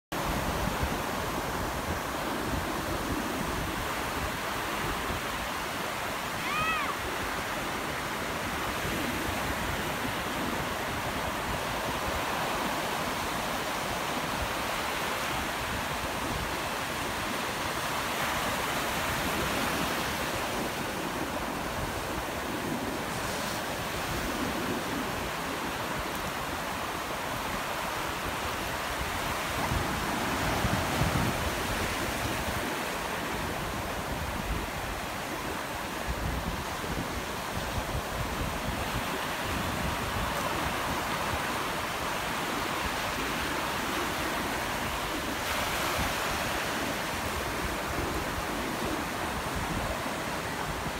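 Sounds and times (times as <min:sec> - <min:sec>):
ocean surf breaking: 0:00.2 - 0:50.9
short high-pitched cry: 0:06.4 - 0:07.0.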